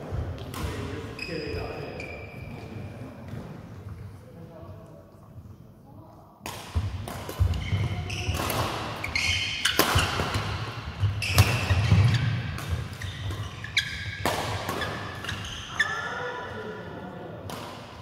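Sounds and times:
trainers squeaking on court floor: 0:00.6 - 0:03.1, 0:07.4 - 0:16.3
racket striking shuttlecock: 0:06.4 - 0:15.5.

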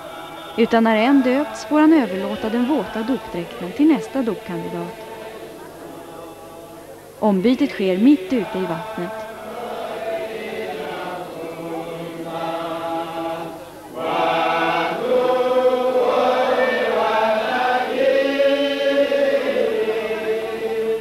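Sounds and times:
choir singing long held notes: 0:00.0 - 0:21.0.

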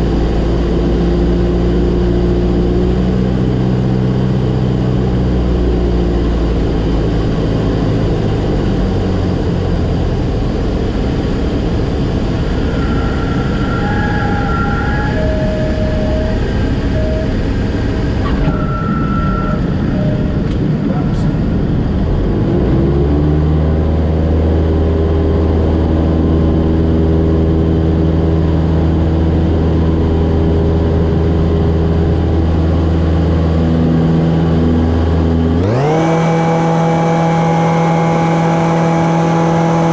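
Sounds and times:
propeller airplane engine: 0:00.0 - 0:39.9
wind: 0:00.0 - 0:39.9
short high tones: 0:12.4 - 0:20.5.

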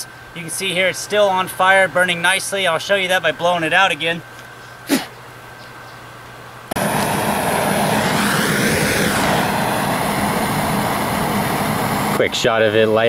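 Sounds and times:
propane torch hissing: 0:06.8 - 0:12.5.

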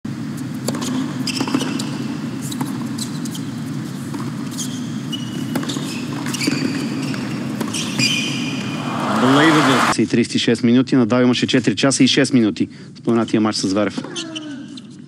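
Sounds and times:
shoes squeaking on court: 0:00.3 - 0:09.2
racket striking tennis ball: 0:05.4 - 0:09.9.

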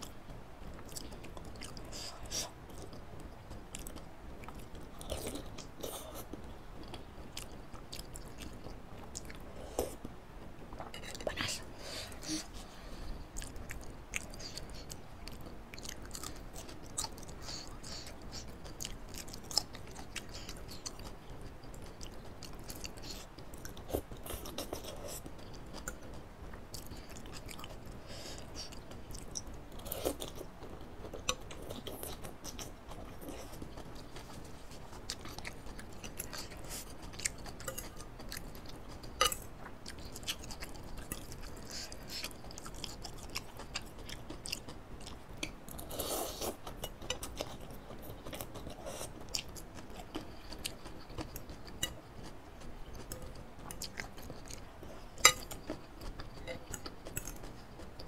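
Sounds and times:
chewing noodles: 0:13.3 - 0:58.0.

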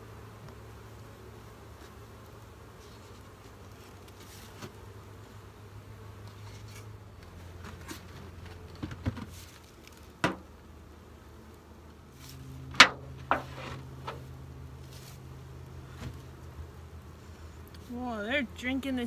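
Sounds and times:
honey bees humming: 0:00.0 - 0:19.0
wooden hive lids knocking: 0:07.6 - 0:09.5, 0:10.1 - 0:10.6, 0:12.6 - 0:14.3.

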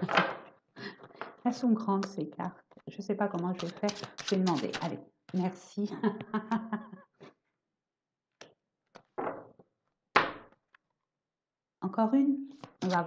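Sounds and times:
cards clicking and rustling: 0:03.4 - 0:04.9, 0:12.5 - 0:13.0
cards thunking on table: 0:10.2 - 0:10.6.

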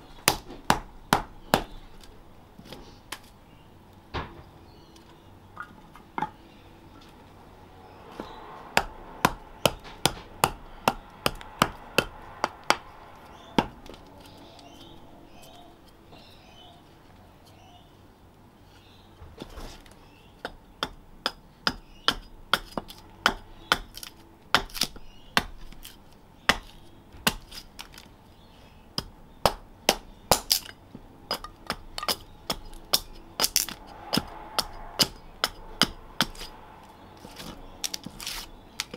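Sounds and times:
hatchet chopping wood: 0:00.2 - 0:01.8, 0:08.2 - 0:12.9, 0:13.6 - 0:14.0, 0:20.4 - 0:28.0, 0:29.0 - 0:36.5.

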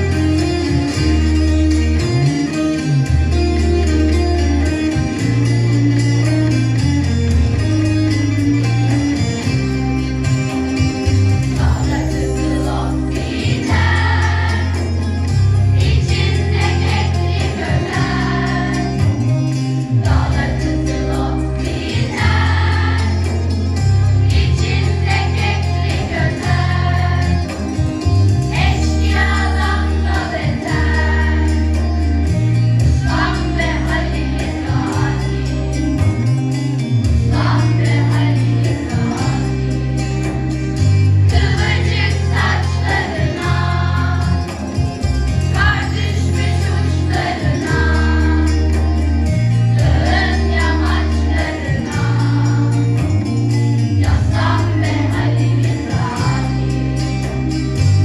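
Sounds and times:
accompaniment with bass line: 0:00.0 - 0:58.0
children's choir singing: 0:11.5 - 0:15.1, 0:15.8 - 0:19.2, 0:20.0 - 0:23.5, 0:24.3 - 0:27.6, 0:28.5 - 0:31.8, 0:33.0 - 0:35.5, 0:37.3 - 0:39.6, 0:41.3 - 0:44.6, 0:45.5 - 0:48.9, 0:49.8 - 0:52.8, 0:54.0 - 0:56.8.

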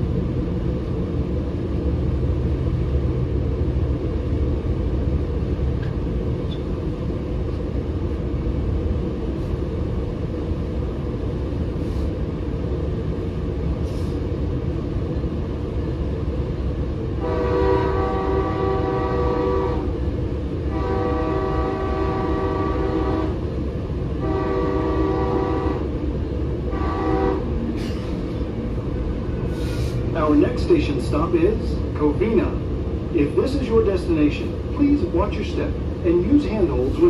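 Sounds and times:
train rumble: 0:00.0 - 0:37.0
locomotive horn blasts: 0:17.2 - 0:19.9, 0:20.6 - 0:23.4, 0:24.2 - 0:26.0, 0:26.7 - 0:27.5.

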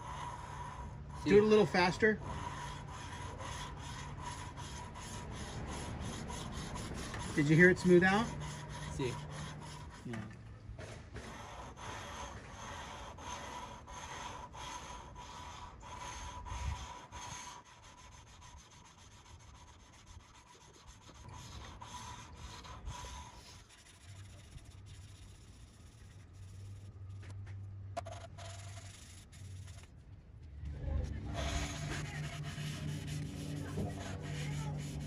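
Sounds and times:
valve lapping tool grinding: 0:01.2 - 0:10.2.

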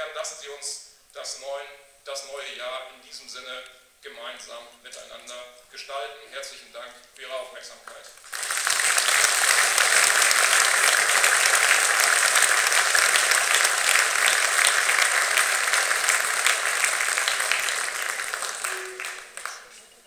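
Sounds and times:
audience applauding: 0:08.2 - 0:20.0.

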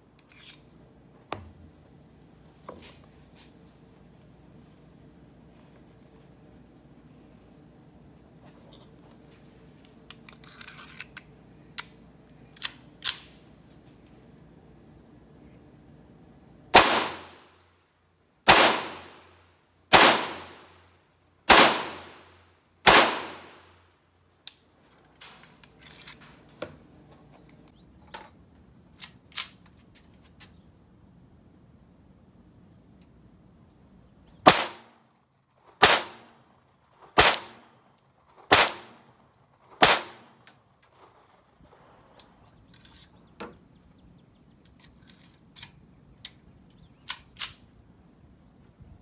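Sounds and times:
pistol shots echoing: 0:16.8 - 0:17.4, 0:18.5 - 0:19.2, 0:19.9 - 0:20.7, 0:21.5 - 0:23.7, 0:34.4 - 0:35.0, 0:35.8 - 0:36.4, 0:37.2 - 0:37.8, 0:38.5 - 0:39.1, 0:39.8 - 0:40.4.

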